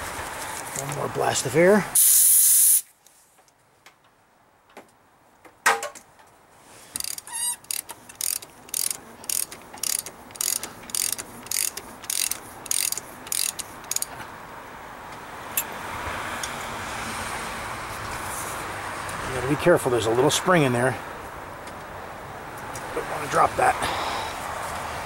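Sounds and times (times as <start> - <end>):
socket wrench ratchet clicking: 7.0 - 14.1.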